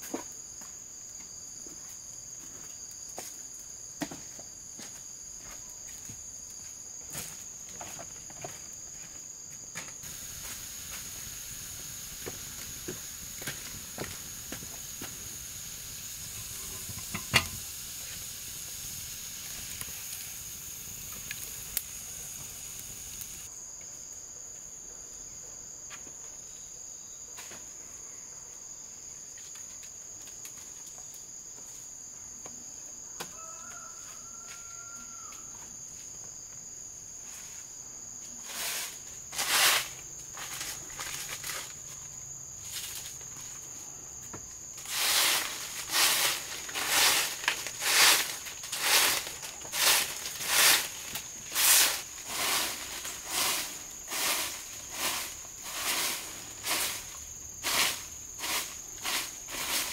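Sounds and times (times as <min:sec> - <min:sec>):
insects droning: 0:00.0 - 0:59.9
rustles and knocks: 0:16.5 - 0:17.6.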